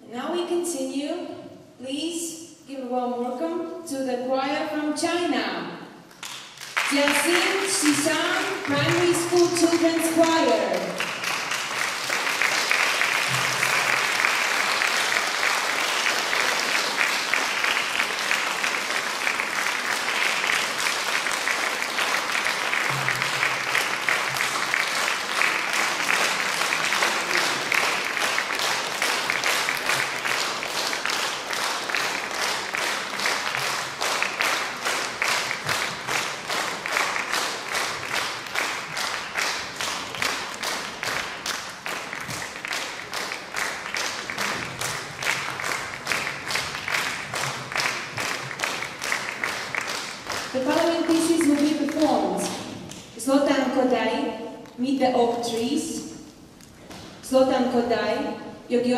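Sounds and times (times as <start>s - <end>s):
audience applauding: 6.1s - 53.1s.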